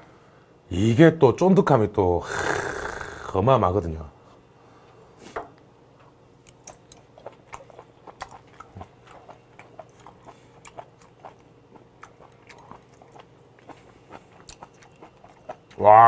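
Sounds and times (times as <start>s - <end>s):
person chewing: 6.4s - 16.0s.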